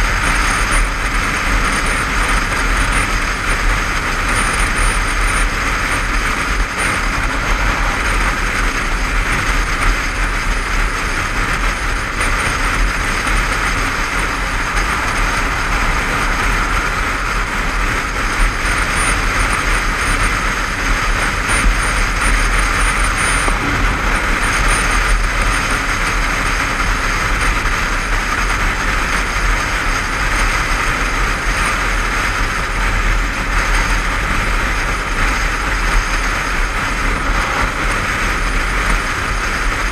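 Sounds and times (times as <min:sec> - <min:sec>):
motorcycle engine drone: 0:00.0 - 0:39.9
wind and road noise: 0:00.0 - 0:39.9.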